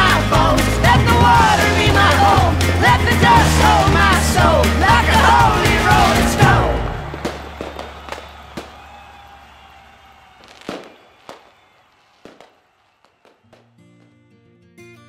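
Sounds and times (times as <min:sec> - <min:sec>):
loud music: 0:00.0 - 0:07.8
fireworks bangs: 0:05.0 - 0:13.8.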